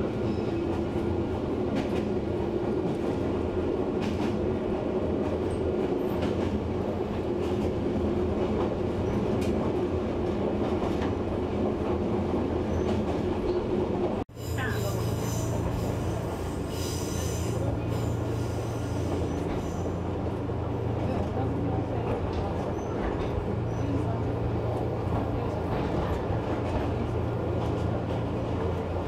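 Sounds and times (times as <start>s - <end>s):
train rumble and hum: 0.0s - 29.0s.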